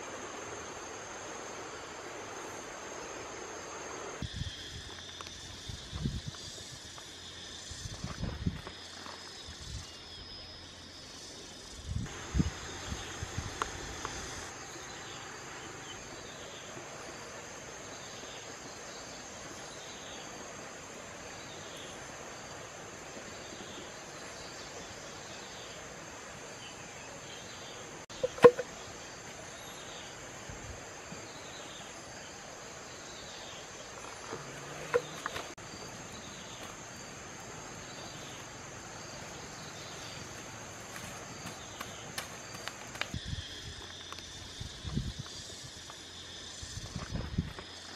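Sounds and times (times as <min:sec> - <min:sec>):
insects droning: 0:00.0 - 0:47.9
sharp knocks: 0:28.2 - 0:28.7.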